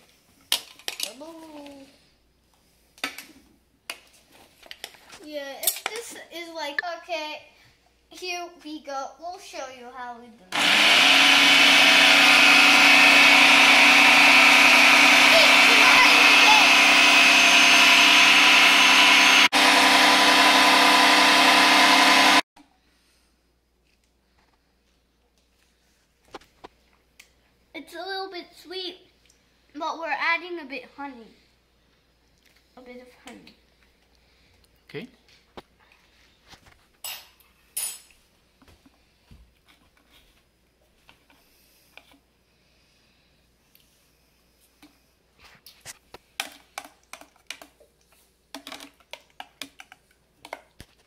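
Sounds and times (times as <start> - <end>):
food processor motor whine: 10.5 - 22.4.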